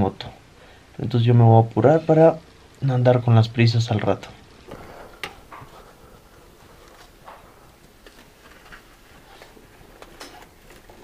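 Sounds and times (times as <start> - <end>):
footsteps: 4.7 - 11.0.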